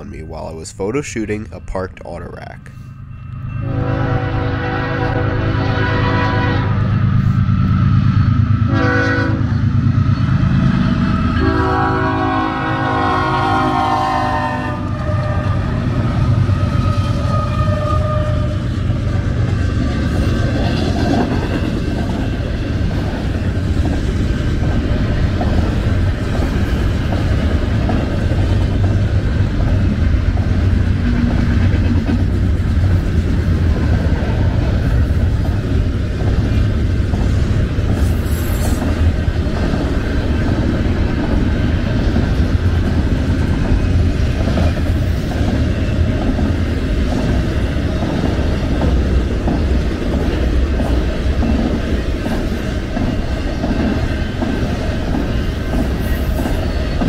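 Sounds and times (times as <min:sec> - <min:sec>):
train rumbling and clattering: 0:00.0 - 0:57.0
locomotive horn blasts: 0:03.6 - 0:06.9, 0:08.7 - 0:09.5, 0:11.4 - 0:15.6, 0:17.1 - 0:18.7.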